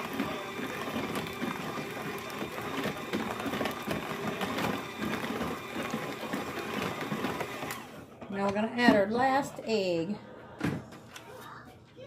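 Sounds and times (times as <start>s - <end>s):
beaters rattling against plastic bowl: 0.0s - 7.8s
hand mixer motor whine: 0.0s - 8.0s.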